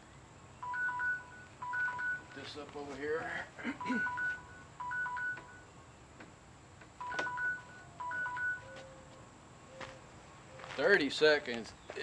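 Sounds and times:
timer beeping at two pitches: 0:03.8 - 0:05.7.

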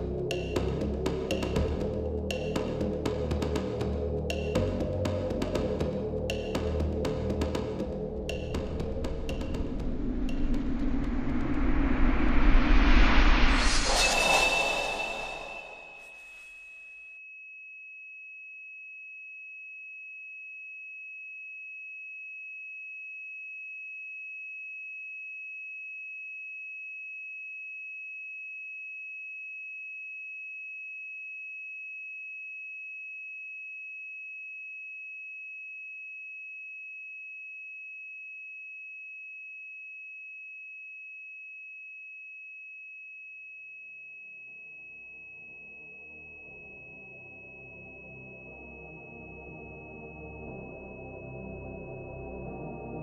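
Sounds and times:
low tone: 0:08.0 - 0:16.1
loud rush of noise: 0:09.1 - 0:16.1
high-pitched ringing tone: 0:11.4 - 0:16.1.

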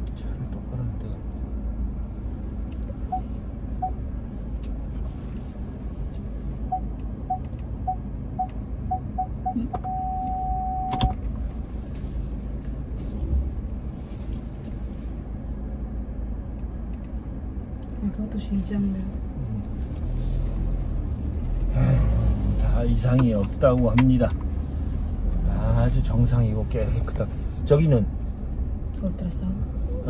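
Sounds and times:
car cabin rumble: 0:00.0 - 0:30.0
parking sensor beeping: 0:03.1 - 0:04.0, 0:06.7 - 0:11.2.

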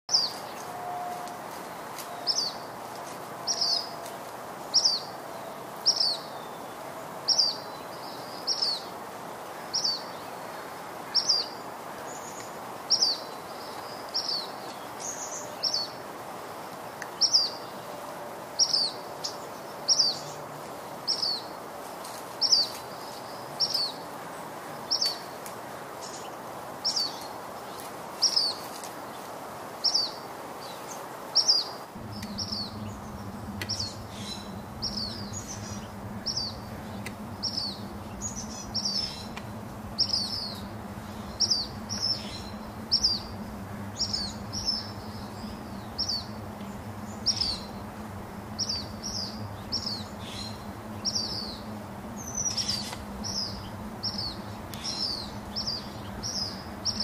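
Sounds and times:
bird chirping: 0:00.1 - 0:08.9, 0:29.8 - 0:57.0
background hiss: 0:00.1 - 0:57.0.

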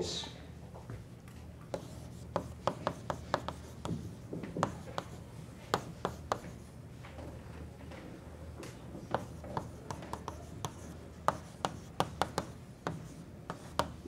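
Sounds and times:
steady low hum: 0:00.0 - 0:14.0
chalk tapping and scratching: 0:01.7 - 0:06.7, 0:09.0 - 0:14.0.

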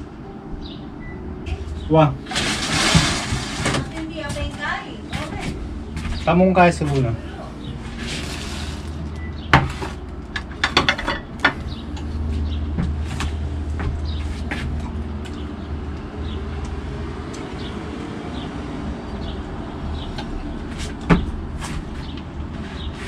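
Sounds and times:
steady low rumble: 0:00.0 - 0:22.8
dishes clattering on wooden table: 0:09.5 - 0:11.6.

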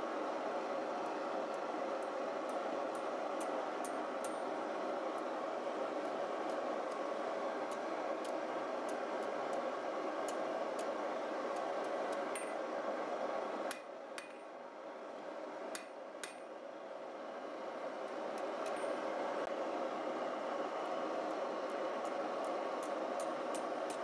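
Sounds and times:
hammer striking steel on anvil: 0:12.3 - 0:12.6, 0:13.7 - 0:14.5, 0:15.7 - 0:16.5.

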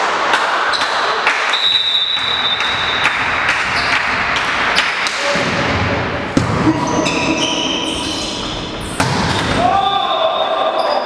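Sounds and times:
crowd voices and movement: 0:00.0 - 0:11.0
high referee whistle: 0:00.7 - 0:04.0.

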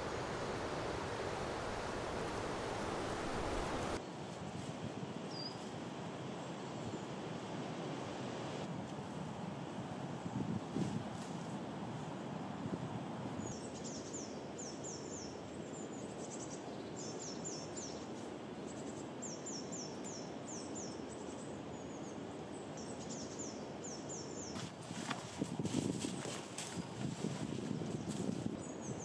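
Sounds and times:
outdoor background noise: 0:00.0 - 0:29.0
songbird singing: 0:05.3 - 0:05.6, 0:13.4 - 0:25.2, 0:26.6 - 0:29.0.

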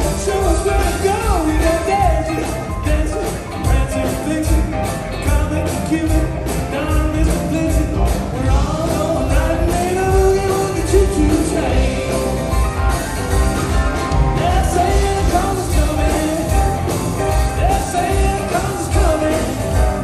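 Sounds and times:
person singing: 0:00.0 - 0:12.4, 0:14.3 - 0:20.0
live band playing boogie-woogie: 0:00.0 - 0:20.0.

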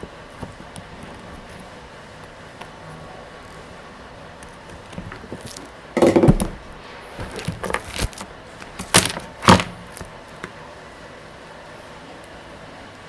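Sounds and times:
rustling clatter of parts: 0:04.8 - 0:06.6
sharp knocks: 0:06.0 - 0:06.6.

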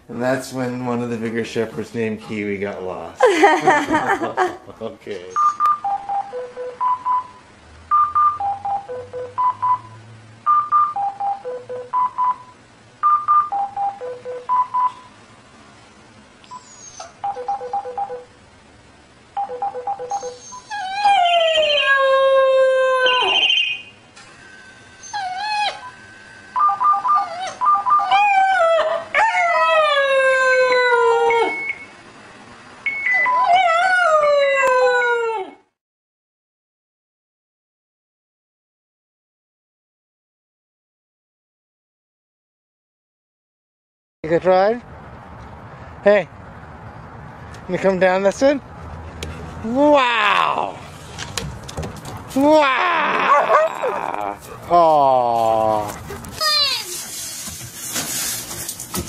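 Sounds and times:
phone beeping ringtone melody: 0:05.4 - 0:15.1, 0:17.2 - 0:18.3, 0:19.4 - 0:20.4
puppy howling: 0:20.2 - 0:23.8, 0:25.0 - 0:25.9, 0:27.1 - 0:31.6, 0:33.1 - 0:35.7, 0:52.4 - 0:56.4.

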